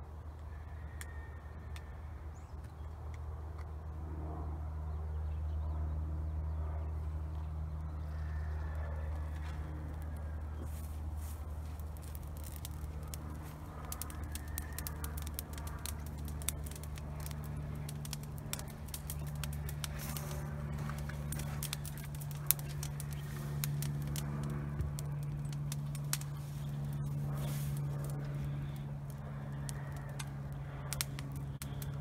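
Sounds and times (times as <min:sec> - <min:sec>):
low engine hum: 0:00.0 - 0:32.0
brush pile fire crackling: 0:09.0 - 0:32.0.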